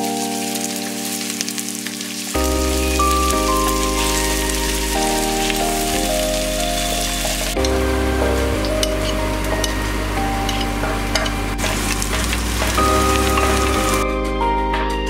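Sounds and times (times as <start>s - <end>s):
onions sizzling in oil: 0.0s - 14.0s
music with held chords and bass: 2.3s - 15.0s.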